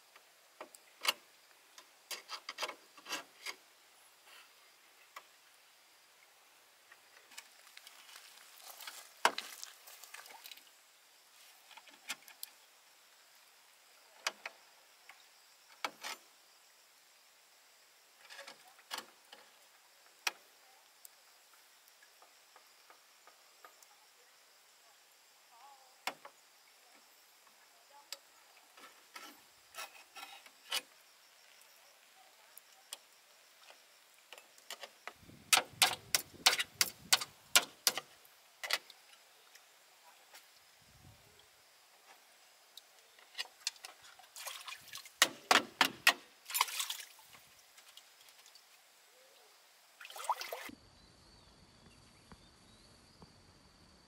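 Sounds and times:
clicks and knocks on bamboo: 6.9s - 10.7s, 14.2s - 16.2s, 26.0s - 26.4s, 33.7s - 39.0s, 45.2s - 46.9s.

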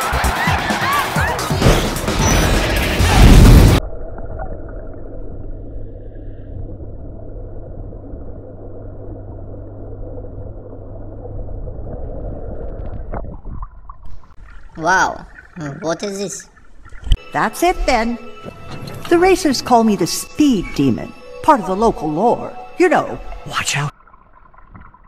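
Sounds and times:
loud boom sound effect: 1.6s - 3.8s
steady low hum: 3.8s - 12.6s
muffled underwater rumble: 3.8s - 14.0s.

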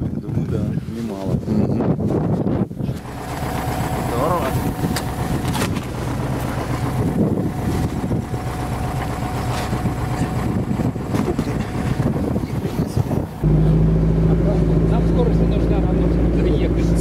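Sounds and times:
wind on microphone: 0.0s - 13.5s
diesel engine running: 2.6s - 17.0s
cargo bed knocking and rattling: 4.3s - 8.2s, 9.0s - 13.4s.

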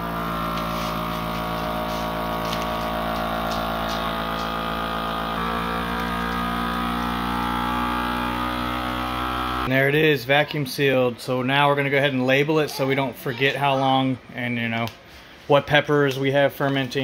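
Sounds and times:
vacuum sealer pump humming: 0.0s - 9.7s.

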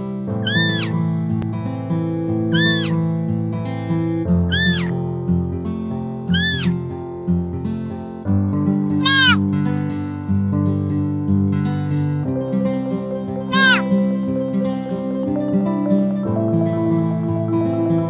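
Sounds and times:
acoustic guitar music: 0.0s - 18.0s
deer fawn bleating: 0.4s - 0.9s, 2.5s - 3.0s, 4.5s - 4.9s, 6.3s - 6.8s, 9.0s - 9.4s, 13.4s - 13.9s.

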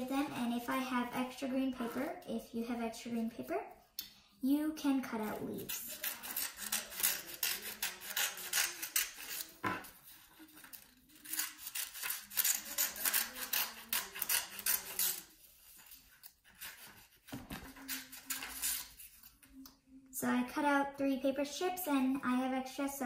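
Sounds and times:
scissors cutting paper: 5.1s - 19.5s.

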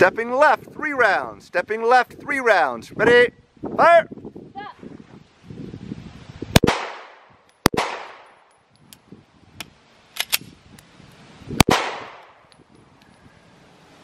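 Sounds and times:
handgun shots: 11.6s - 12.4s.

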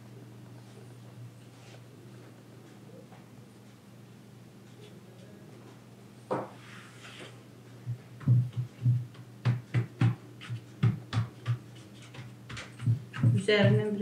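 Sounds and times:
hands patting dough: 7.9s - 14.0s.

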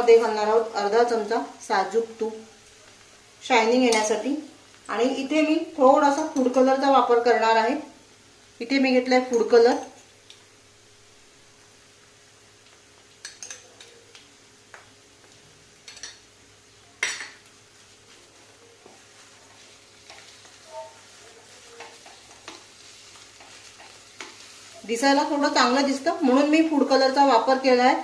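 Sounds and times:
wooden spatula scraping wok: 17.8s - 25.1s.

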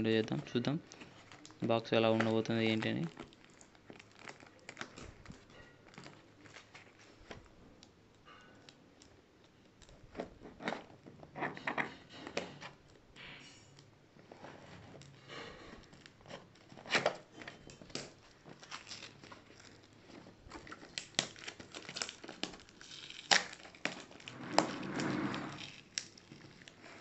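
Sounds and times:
tape and cardboard crinkling: 0.0s - 8.4s, 14.2s - 27.0s
tape tearing rustle: 14.2s - 27.0s.

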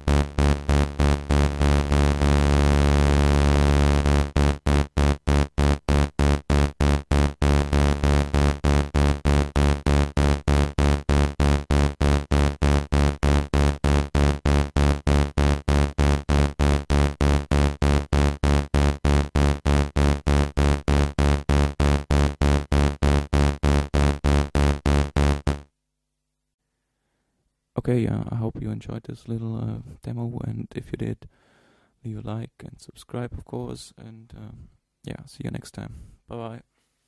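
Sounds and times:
low buzzy synthesizer notes: 0.0s - 25.6s.

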